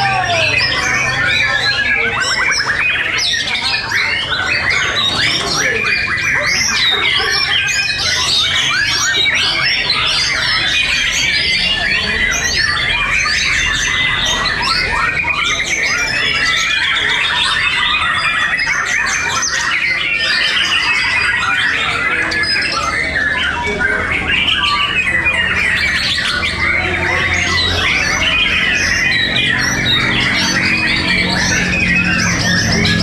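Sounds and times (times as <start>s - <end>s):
birds singing: 0.0s - 33.0s.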